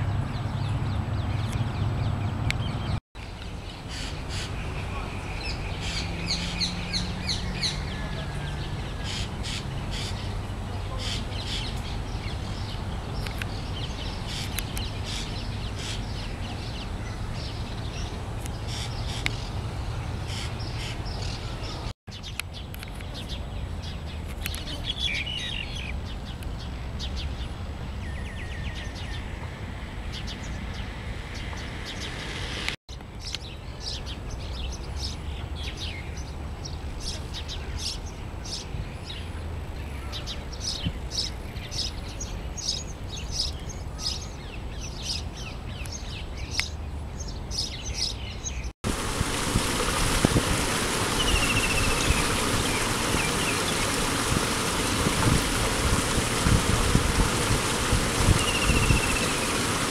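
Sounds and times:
bird chirps: 58.3s - 59.6s.

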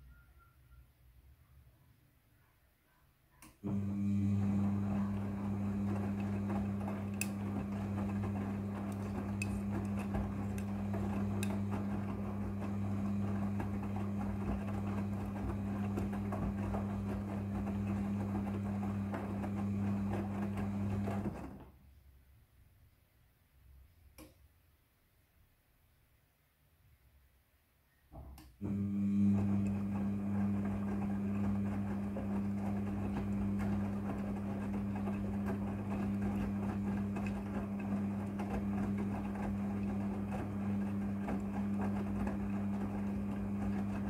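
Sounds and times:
washing machine motor hum: 3.4s - 21.9s, 28.4s - 44.0s.

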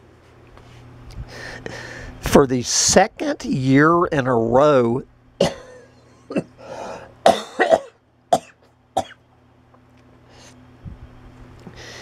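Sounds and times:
man speaking: 2.3s - 5.0s
man coughing: 5.4s - 6.6s, 7.2s - 9.2s.

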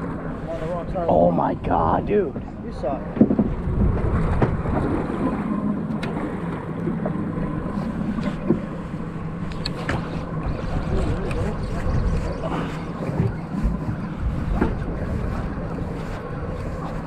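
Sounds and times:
boat engine humming: 0.0s - 17.0s
wind buffeting microphone: 0.0s - 17.0s
faint clicks: 9.4s - 10.0s.

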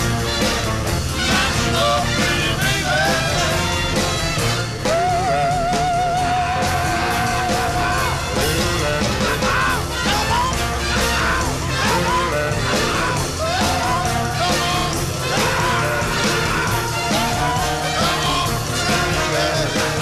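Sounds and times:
rock and roll song with singer: 0.0s - 20.0s.

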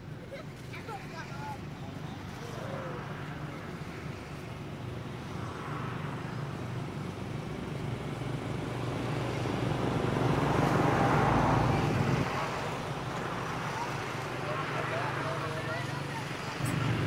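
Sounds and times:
vehicle engine passing by: 8.7s - 17.0s.

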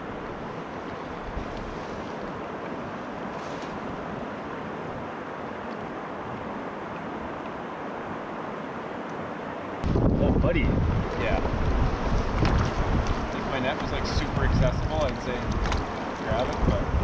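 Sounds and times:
river water flowing: 0.0s - 10.1s, 10.7s - 17.0s
wind: 0.0s - 17.0s.

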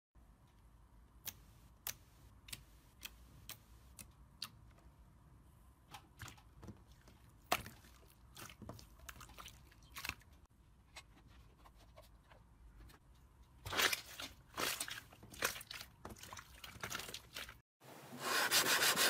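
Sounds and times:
slime squelching: 5.8s - 10.5s, 12.4s - 17.6s.

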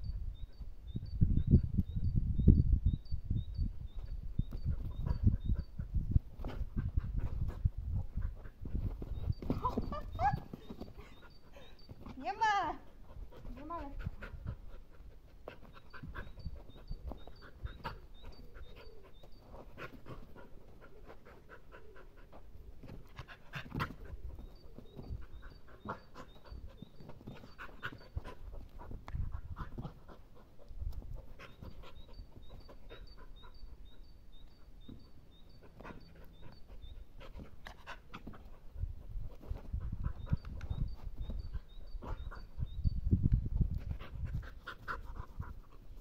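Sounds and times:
dog panting: 12.8s - 34.0s, 43.7s - 46.0s.

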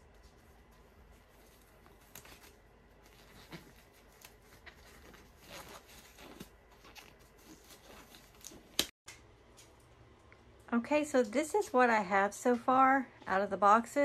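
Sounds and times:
gloves crinkling and snapping: 0.0s - 9.8s.

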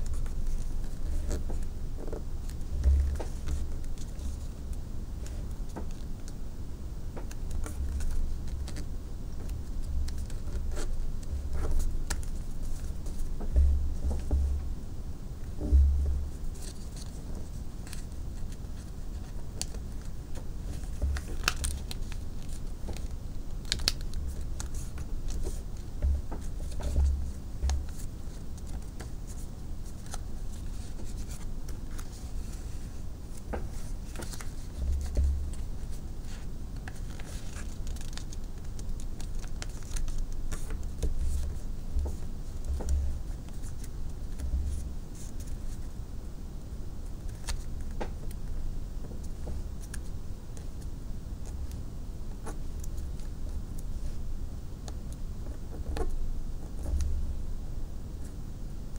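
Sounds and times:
paper being folded and creased: 0.0s - 4.6s, 5.2s - 6.3s, 7.2s - 14.3s, 16.4s - 45.9s, 47.1s - 50.8s.

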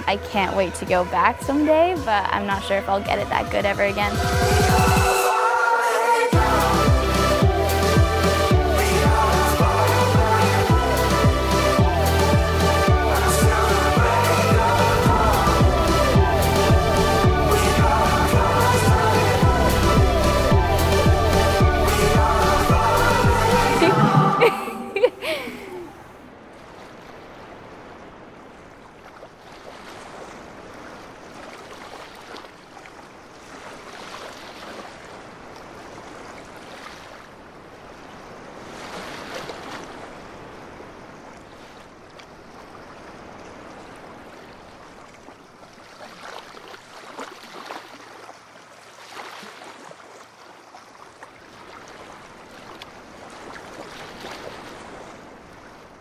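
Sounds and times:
small waves breaking on beach: 25.5s - 56.0s.

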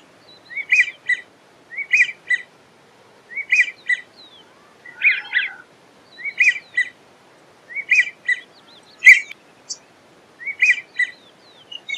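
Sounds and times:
duck whistled calls: 4.8s - 5.6s, 9.0s - 9.3s.

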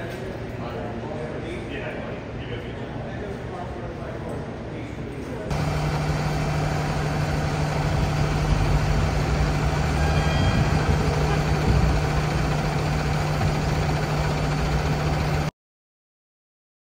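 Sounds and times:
truck engine idling: 5.5s - 15.5s.

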